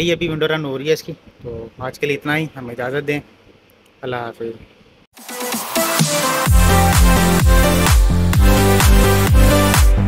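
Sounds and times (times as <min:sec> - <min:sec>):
electronic dance music: 0:05.2 - 0:10.0
heavy bass kick beat: 0:05.2 - 0:10.0.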